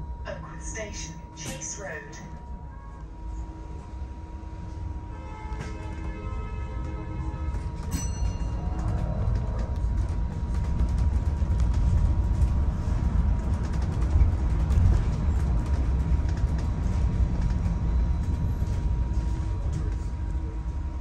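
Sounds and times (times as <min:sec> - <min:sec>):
bus engine and road rumble: 0:00.0 - 0:21.0.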